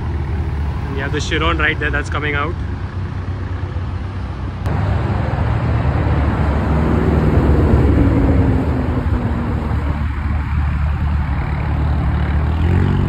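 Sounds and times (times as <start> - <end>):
car engine deep rumble: 0.0 - 13.0.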